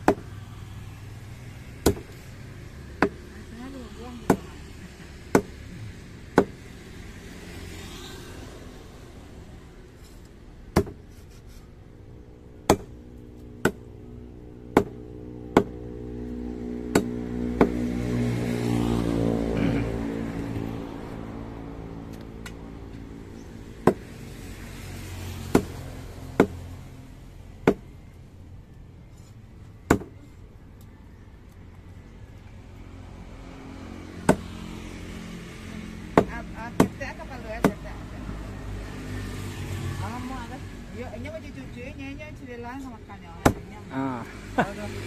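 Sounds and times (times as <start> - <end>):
cleaver chopping on wooden block: 0.0 - 0.3, 1.8 - 2.2, 3.0 - 3.2, 4.2 - 4.5, 5.3 - 5.6, 6.3 - 6.6, 10.7 - 11.0, 12.6 - 13.0, 13.6 - 13.9, 14.7 - 15.8, 16.9 - 17.9, 23.8 - 24.2, 25.5 - 25.8, 26.4 - 26.7, 27.6 - 27.9, 29.9 - 30.2, 34.2 - 34.6, 36.1 - 37.9, 43.4 - 43.7
passing motor vehicle: 0.0 - 45.0.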